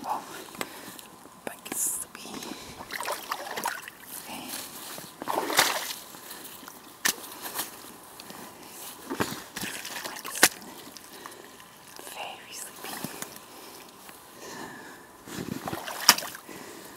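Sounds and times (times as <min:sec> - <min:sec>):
boots splashing through puddle: 0:05.2 - 0:06.0, 0:09.6 - 0:10.6, 0:15.7 - 0:16.4.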